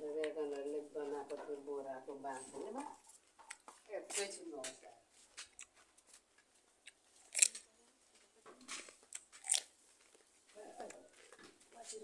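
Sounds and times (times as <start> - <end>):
crunchy cucumber bites and chewing: 5.4 - 7.7, 8.6 - 11.0.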